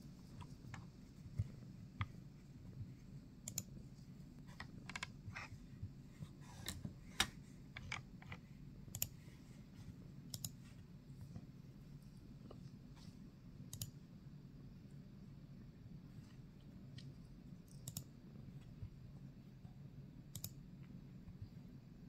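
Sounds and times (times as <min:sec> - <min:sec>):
faint low hum: 0:00.0 - 0:22.0
computer mouse clicking: 0:00.3 - 0:03.8, 0:04.4 - 0:05.5, 0:06.5 - 0:09.2, 0:10.2 - 0:10.7, 0:13.6 - 0:14.0, 0:16.9 - 0:18.2, 0:20.3 - 0:20.7.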